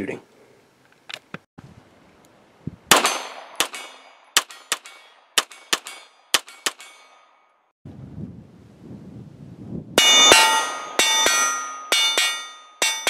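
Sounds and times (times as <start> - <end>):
pistol shots: 2.9 - 7.0
bullets clanging on steel targets: 3.0 - 7.5, 10.0 - 13.0.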